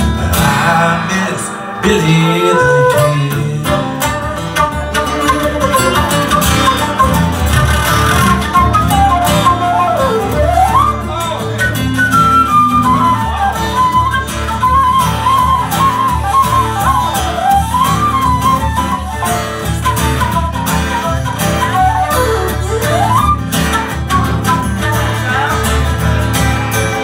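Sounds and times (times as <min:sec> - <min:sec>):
strummed acoustic guitars: 0:00.0 - 0:27.0
flute melody: 0:01.3 - 0:27.0.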